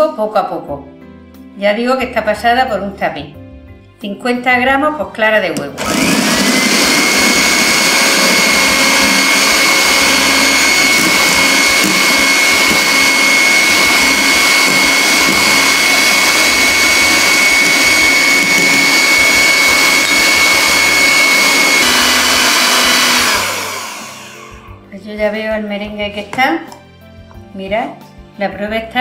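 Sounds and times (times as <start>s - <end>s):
electric hand mixer whirring: 5.7s - 24.9s.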